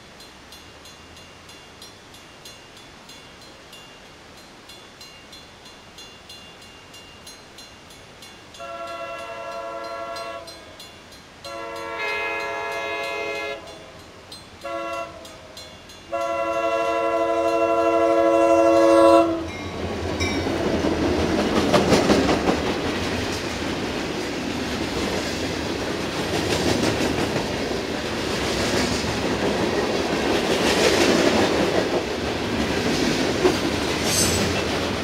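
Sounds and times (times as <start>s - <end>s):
train engine and wheels rumbling: 0.0s - 35.0s
locomotive air horn blasts: 8.6s - 10.6s, 11.4s - 13.8s, 14.6s - 15.5s, 16.1s - 19.6s.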